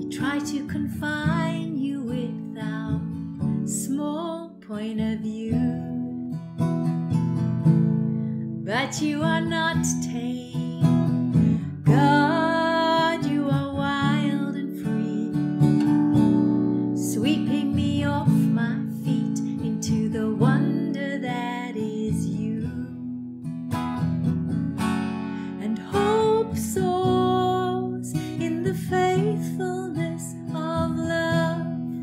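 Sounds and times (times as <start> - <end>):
woman singing: 0.0 - 6.4, 8.6 - 15.9, 16.9 - 23.2, 25.4 - 32.0
acoustic guitar strumming: 5.6 - 32.0.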